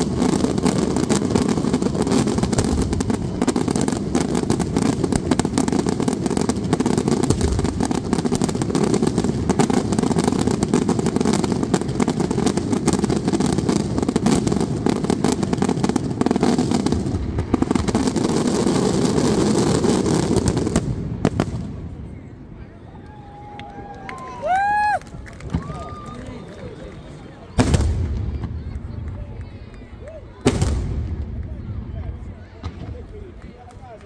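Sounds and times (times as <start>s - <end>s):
fireworks rapid bangs: 0.0s - 21.8s, 27.6s - 28.9s, 30.4s - 31.4s.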